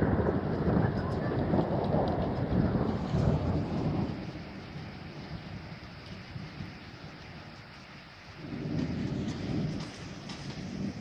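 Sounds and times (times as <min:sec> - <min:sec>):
low rumble: 0:00.0 - 0:07.5
rain on a wet street: 0:00.0 - 0:11.0.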